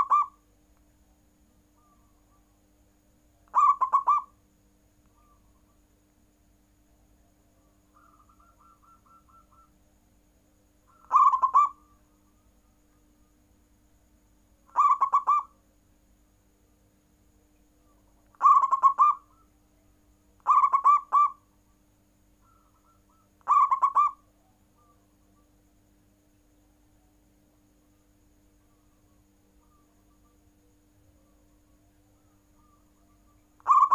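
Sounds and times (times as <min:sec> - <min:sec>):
dove cooing: 0:00.0 - 0:00.4, 0:03.5 - 0:04.4, 0:07.6 - 0:09.8, 0:10.9 - 0:12.0, 0:14.7 - 0:15.5, 0:18.3 - 0:19.5, 0:20.4 - 0:21.4, 0:22.4 - 0:25.1, 0:32.0 - 0:33.9.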